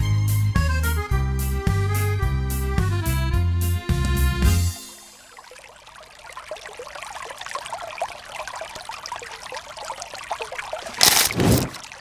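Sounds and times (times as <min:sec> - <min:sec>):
stream babbling over rocks: 0:05.1 - 0:12.0.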